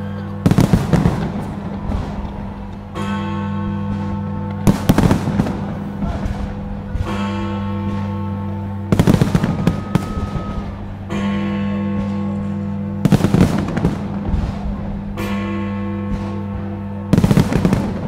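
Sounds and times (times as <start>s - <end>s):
fireworks bangs and crackles: 0.0s - 11.1s, 11.9s - 18.0s
music holding steady chord: 0.0s - 18.0s.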